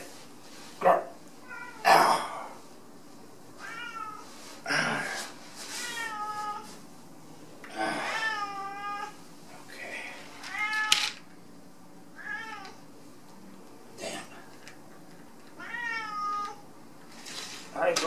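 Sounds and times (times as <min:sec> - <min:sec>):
cat meowing: 0:01.4 - 0:01.9, 0:03.6 - 0:04.2, 0:05.8 - 0:06.7, 0:12.2 - 0:12.8, 0:15.6 - 0:16.6.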